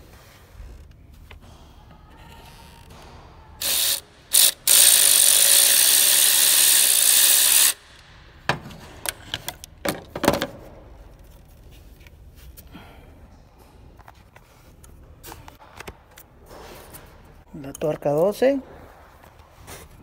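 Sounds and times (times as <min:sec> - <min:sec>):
power ratchet spinning: 0:03.6 - 0:08.3.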